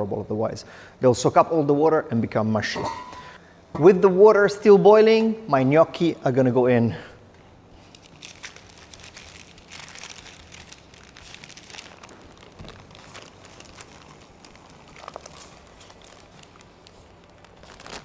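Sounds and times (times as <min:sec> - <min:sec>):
parchment paper crinkling: 0:07.8 - 0:18.0.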